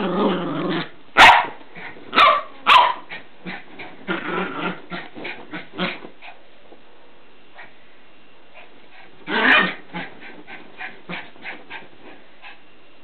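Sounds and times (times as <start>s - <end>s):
puppy growling: 0.0s - 1.0s, 3.1s - 6.4s, 9.2s - 11.9s
puppy barking: 1.2s - 1.6s, 2.2s - 3.1s.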